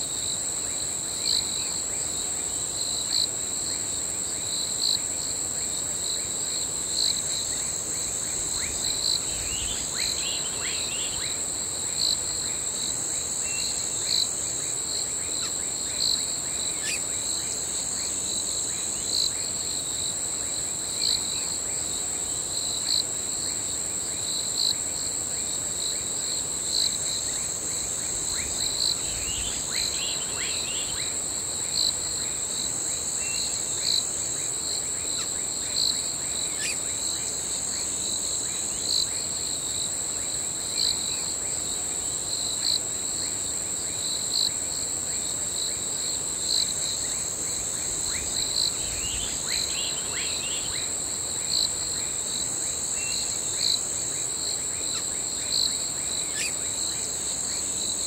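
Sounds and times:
crickets chirping: 0.0s - 58.0s.

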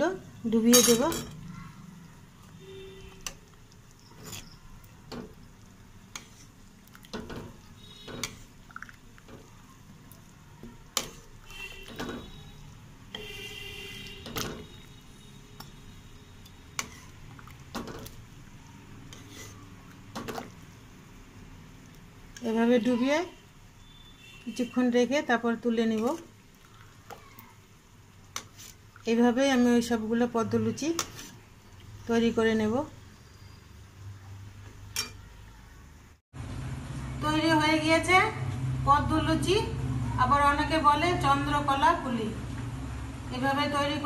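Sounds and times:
metal spoon scraping metal pan: 0.6s - 1.5s, 3.1s - 5.4s, 6.1s - 8.6s, 11.0s - 18.2s, 19.0s - 20.5s, 28.3s - 29.9s, 30.5s - 31.4s.

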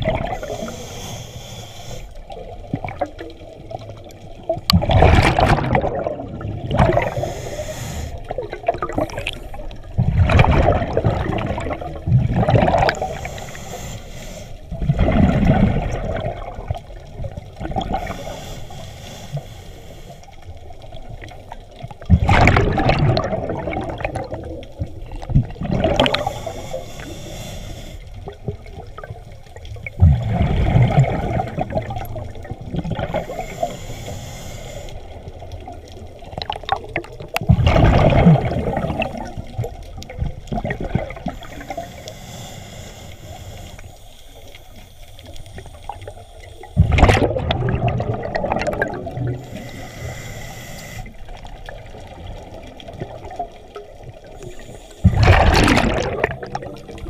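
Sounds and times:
exhaled bubbles gurgling underwater: 0.0s - 57.0s
regulator inhaling hiss: 0.3s - 2.3s, 7.0s - 8.4s, 13.0s - 14.7s, 17.9s - 20.6s, 26.0s - 28.3s, 33.1s - 35.3s, 41.2s - 46.8s, 49.4s - 51.5s, 54.3s - 55.2s.

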